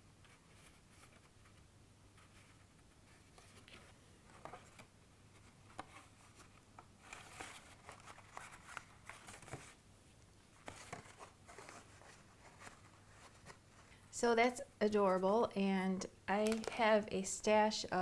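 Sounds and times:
cardstock rustling and tapping: 10.6s - 13.6s, 16.4s - 16.9s.

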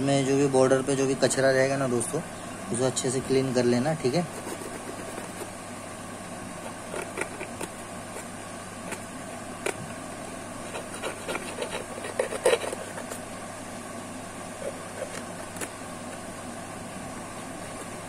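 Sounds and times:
tweezers scraping phone frame: 10.6s - 13.2s.

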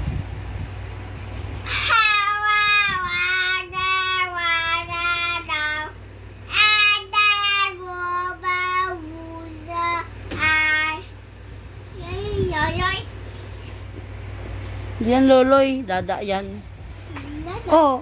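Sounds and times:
child singing wordless tune: 1.7s - 11.1s.

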